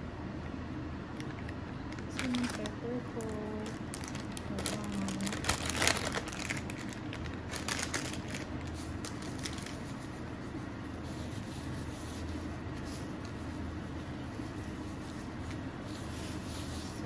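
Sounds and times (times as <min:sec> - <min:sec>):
steady low hum: 0:00.0 - 0:17.0
plastic packet crinkling: 0:02.0 - 0:10.0.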